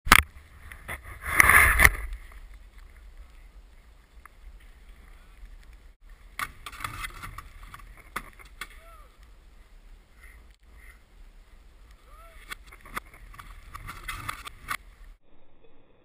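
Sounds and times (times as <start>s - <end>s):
skis sliding over snow: 0.3s - 15.2s
skis scraping on metal box: 0.8s - 2.2s, 6.4s - 8.8s, 12.5s - 14.8s.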